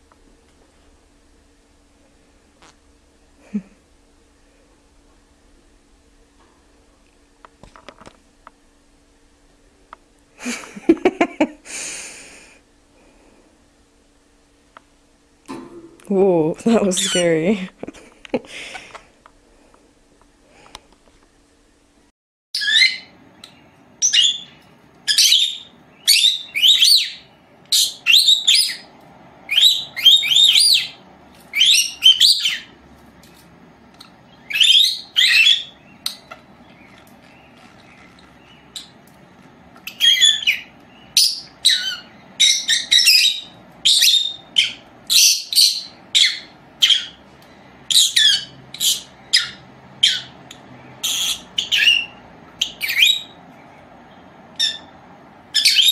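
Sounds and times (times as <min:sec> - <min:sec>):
bird chirping: 0:22.6 - 0:28.9, 0:29.5 - 0:32.8, 0:34.0 - 0:39.0, 0:39.8 - 0:47.2, 0:47.8 - 0:54.9, 0:55.5 - 0:55.9.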